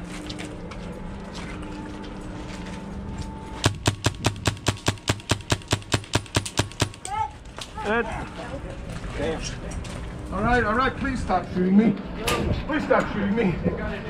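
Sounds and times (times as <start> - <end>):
airsoft gun rapid firing: 3.7 - 7.1.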